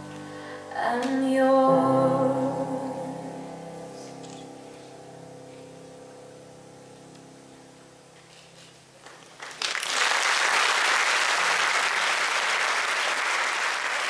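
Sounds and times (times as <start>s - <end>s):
audience applause: 9.0s - 14.0s.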